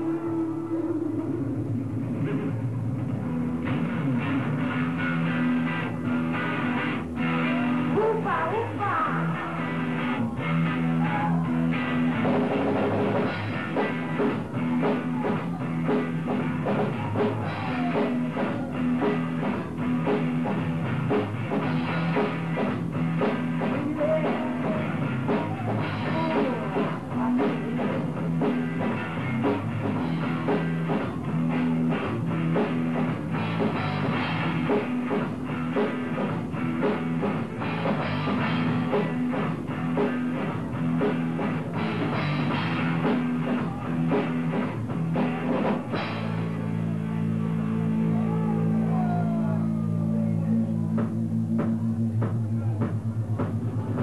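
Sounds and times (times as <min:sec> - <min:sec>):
driving drum kit: 0:00.0 - 0:54.0
electric guitar: 0:00.0 - 0:54.0
repeating low bass line: 0:00.0 - 0:54.0.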